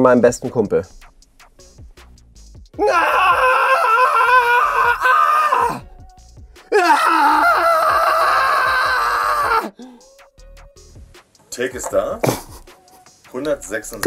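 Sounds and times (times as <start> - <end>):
man screaming: 2.8 - 5.9, 6.7 - 9.8.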